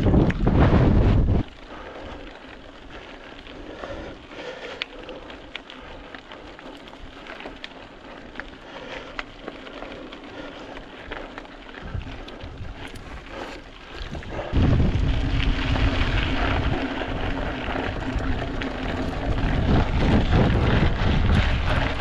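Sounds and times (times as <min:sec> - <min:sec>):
wind gust on microphone: 0:00.0 - 0:01.5, 0:14.1 - 0:22.0
bike tyre noise: 0:00.0 - 0:22.0.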